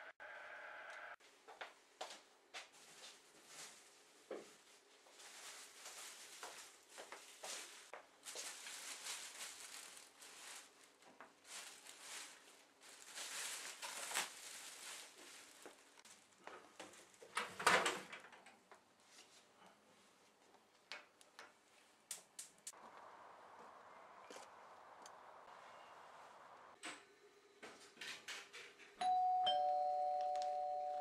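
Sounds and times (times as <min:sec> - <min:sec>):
plastic bag rustling: 0:02.8 - 0:17.3.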